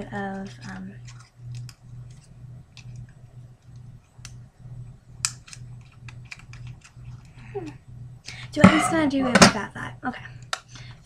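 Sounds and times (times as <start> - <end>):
low pulsing hum: 0.0 - 6.2, 7.0 - 10.4
small clicks and snaps: 0.3 - 4.4, 5.2 - 8.4, 10.4 - 11.0.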